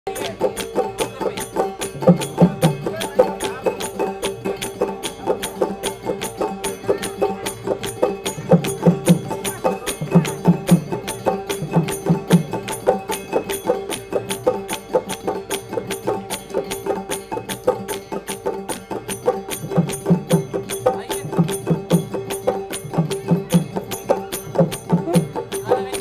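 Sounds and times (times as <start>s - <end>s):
fast percussion beat: 0.1s - 26.0s.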